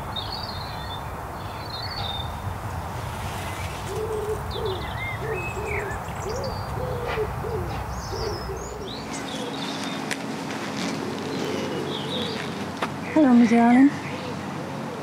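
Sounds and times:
low hooting bird call: 0:03.8 - 0:10.1, 0:10.9 - 0:13.2.

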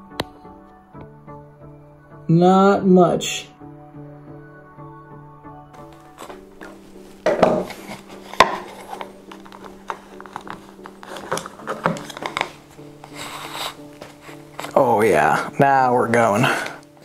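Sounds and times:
soft background music: 0:00.0 - 0:17.0
plastic scraping and clicking: 0:07.4 - 0:12.6.

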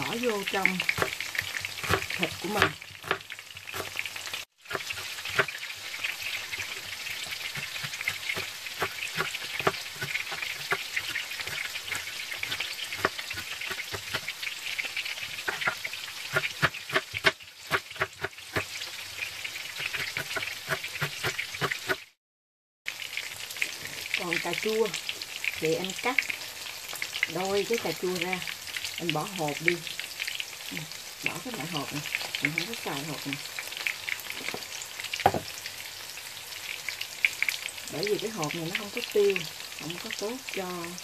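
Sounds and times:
tofu sizzling in oil: 0:00.0 - 0:22.2, 0:22.9 - 0:41.0
knife chopping on cutting board: 0:01.0 - 0:03.2, 0:07.2 - 0:14.3, 0:15.4 - 0:18.7, 0:19.8 - 0:22.0.

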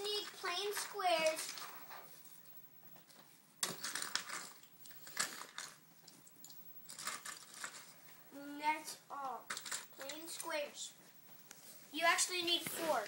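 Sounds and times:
plastic bricks clattering: 0:03.6 - 0:05.8, 0:06.4 - 0:07.9, 0:09.5 - 0:10.5.

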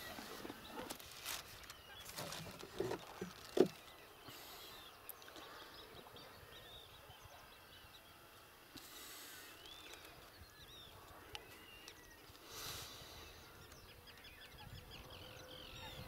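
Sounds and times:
birds chirping and calling: 0:00.0 - 0:16.0.

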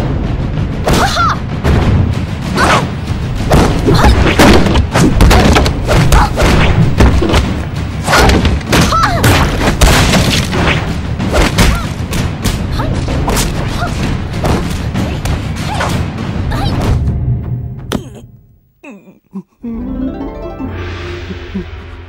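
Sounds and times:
action music: 0:00.0 - 0:18.5, 0:19.8 - 0:22.0
fight thuds and whacks: 0:02.5 - 0:17.1.

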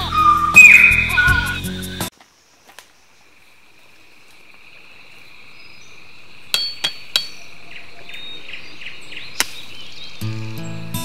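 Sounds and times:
bird chirps: 0:00.0 - 0:03.4, 0:04.9 - 0:10.8
high insect drone: 0:00.0 - 0:08.2
machete chopping bamboo: 0:06.5 - 0:07.4, 0:09.4 - 0:09.6.

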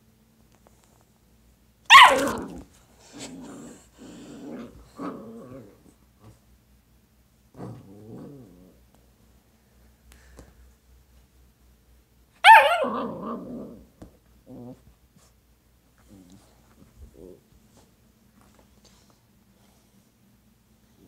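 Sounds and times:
puppy barking: 0:01.9 - 0:02.5, 0:12.4 - 0:13.2
puppy play-growling: 0:01.9 - 0:06.4, 0:07.5 - 0:09.0, 0:12.5 - 0:15.0, 0:16.0 - 0:17.5.

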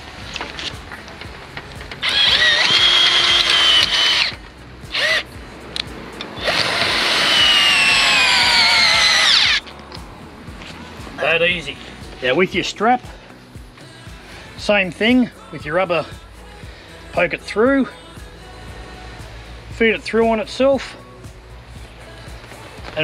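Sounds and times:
cordless drill driving a peg: 0:02.0 - 0:05.3, 0:06.4 - 0:09.6.

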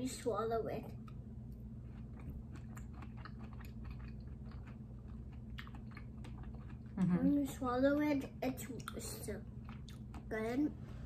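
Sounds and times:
person chewing: 0:01.0 - 0:07.5, 0:08.6 - 0:10.6.

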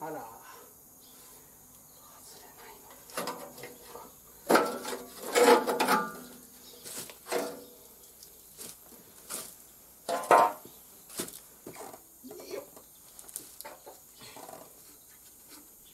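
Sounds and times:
metallic clanks and knocks: 0:04.5 - 0:06.3, 0:10.1 - 0:10.6.

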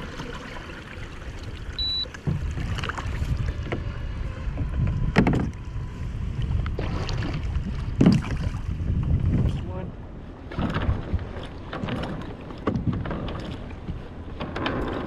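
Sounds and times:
knocks and splashes: 0:00.0 - 0:04.0, 0:04.6 - 0:05.6, 0:06.7 - 0:09.6, 0:10.5 - 0:15.0
water moving around kayak: 0:00.0 - 0:15.0
wind on microphone: 0:01.4 - 0:15.0
high electronic beep: 0:01.8 - 0:02.1.

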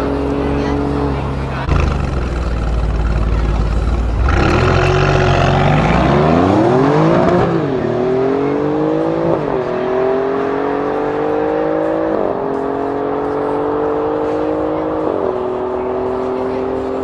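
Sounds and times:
car engines launching at full throttle: 0:00.0 - 0:17.0.

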